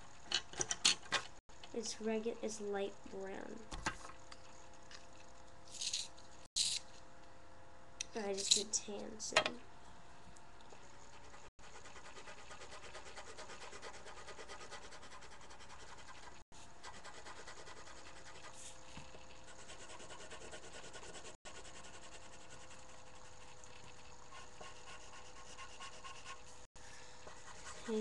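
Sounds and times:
pencil scratching on paper: 0:10.8 - 0:26.6, 0:27.2 - 0:28.0.

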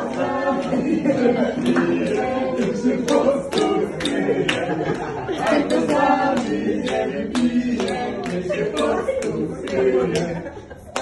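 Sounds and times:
group of people singing: 0:00.0 - 0:11.0
hand claps in time: 0:01.6 - 0:04.7.

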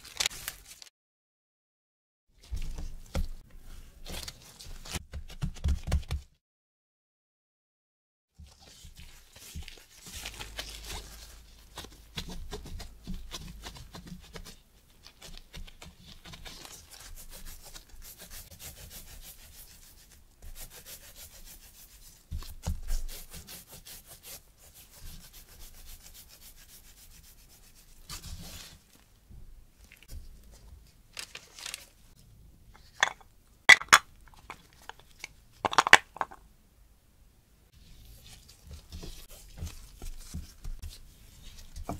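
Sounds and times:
plastic gloves rustling on dough: 0:00.0 - 0:00.9, 0:08.4 - 0:32.2, 0:37.7 - 0:41.9.

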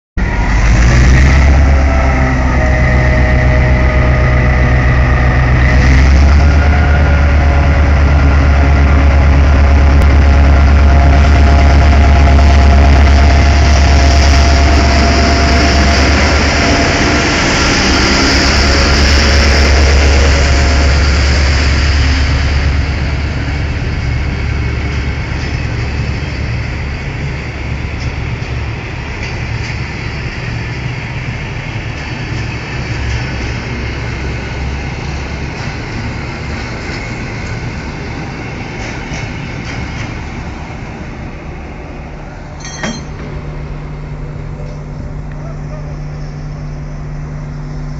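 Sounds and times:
diesel locomotive engine drone: 0:00.2 - 0:47.9
train wheels hissing on rail: 0:11.0 - 0:42.5.

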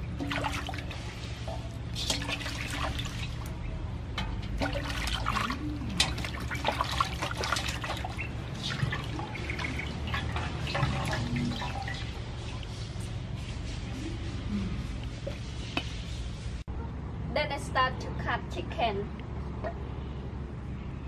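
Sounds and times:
water splashing and dripping: 0:00.0 - 0:13.4.

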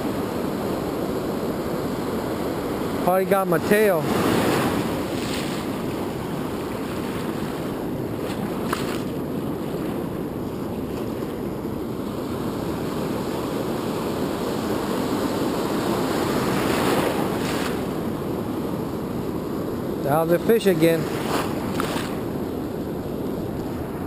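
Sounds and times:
ocean surf breaking: 0:00.0 - 0:24.0.

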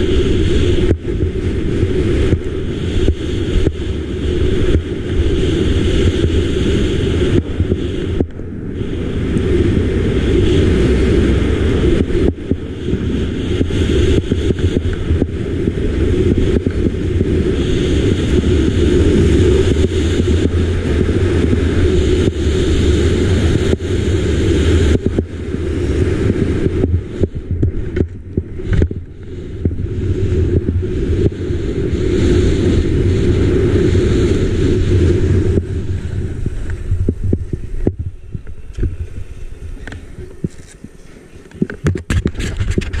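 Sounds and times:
wind rushing over microphone: 0:00.0 - 0:43.0
skis running over packed snow: 0:09.0 - 0:43.0.

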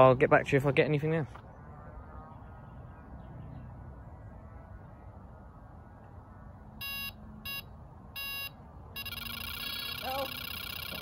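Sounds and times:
bite alarm short beeps: 0:06.8 - 0:11.0.

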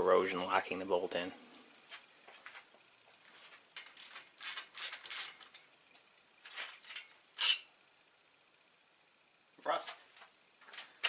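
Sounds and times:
ratchet wrench clicking: 0:03.8 - 0:05.5.

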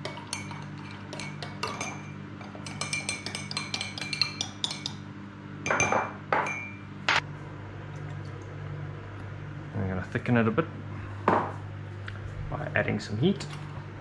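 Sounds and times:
teaspoon clinking in ceramic mug: 0:00.0 - 0:05.0.

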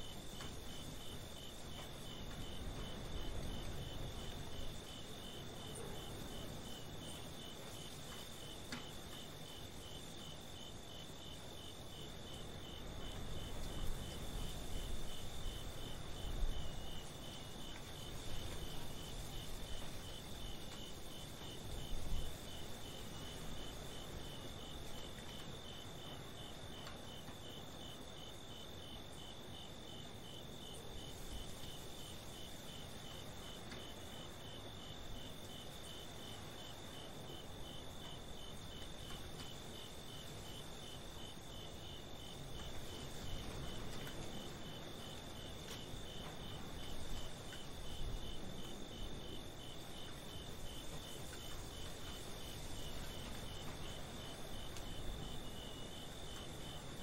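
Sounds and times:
cricket rapid chirping: 0:00.0 - 0:57.0.

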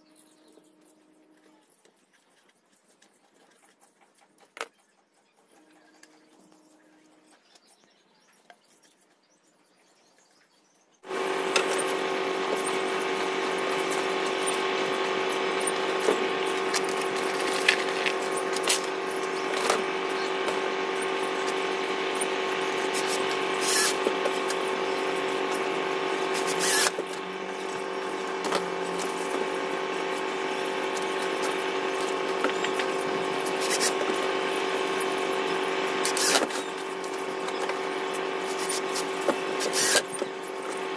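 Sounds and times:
cordless drill whining: 0:11.1 - 0:40.9.

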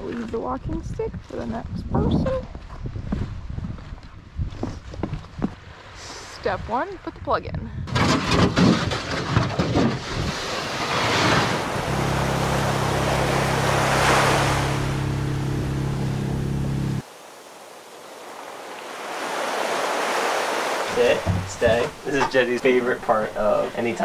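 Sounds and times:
wind buffeting microphone: 0:00.0 - 0:05.8
small waves washing: 0:08.7 - 0:22.9
outboard motor running: 0:10.2 - 0:17.0.

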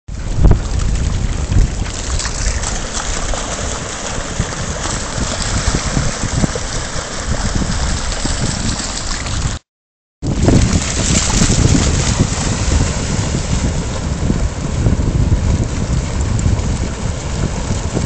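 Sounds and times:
wind buffeting microphone: 0:00.1 - 0:09.6, 0:10.2 - 0:18.0
dogs splashing through water: 0:00.2 - 0:09.6, 0:10.3 - 0:14.1.

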